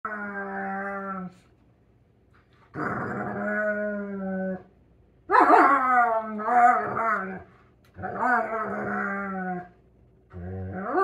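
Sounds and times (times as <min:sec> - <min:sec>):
dog play-growling whines: 0:00.1 - 0:01.4, 0:02.7 - 0:04.6, 0:05.6 - 0:09.7, 0:10.3 - 0:11.0.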